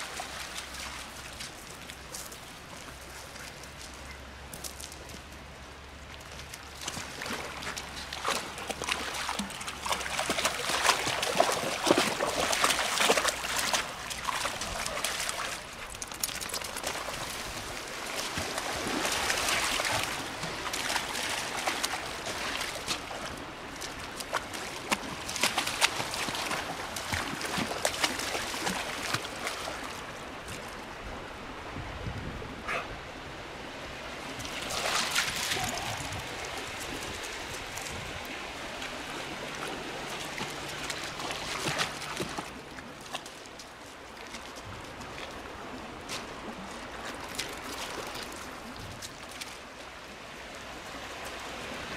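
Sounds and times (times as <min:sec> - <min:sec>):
dog paws splashing in water: 0:00.0 - 0:30.9, 0:34.3 - 0:51.9.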